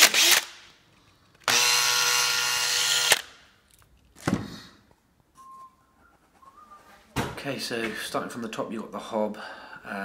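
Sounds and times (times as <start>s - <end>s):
hand drill boring into board: 0.0s - 0.5s, 1.4s - 3.2s.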